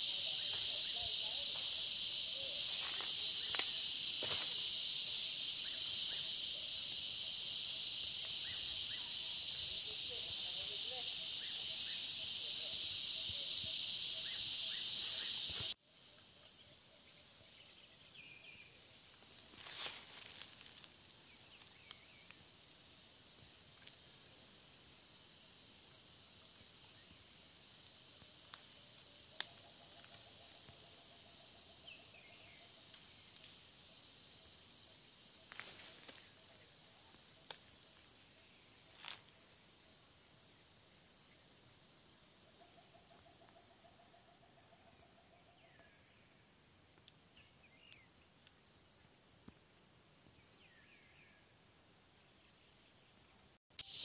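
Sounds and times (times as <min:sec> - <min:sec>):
loud high hiss: 0:00.0 - 0:15.8, 0:53.7 - 0:54.0
faint insect tone: 0:00.0 - 0:54.0
footsteps in dry brush: 0:02.6 - 0:04.7, 0:19.5 - 0:20.9.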